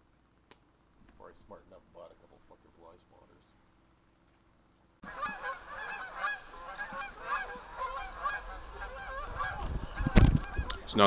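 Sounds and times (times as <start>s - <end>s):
geese honking in flight: 5.0s - 10.8s.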